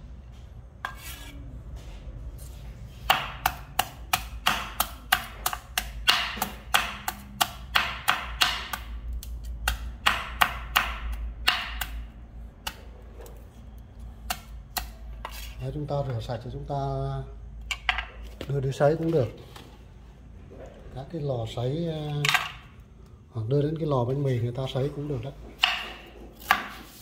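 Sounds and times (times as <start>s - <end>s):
knife chopping on cutting board: 3.0s - 8.9s, 9.6s - 12.0s, 25.6s - 27.0s.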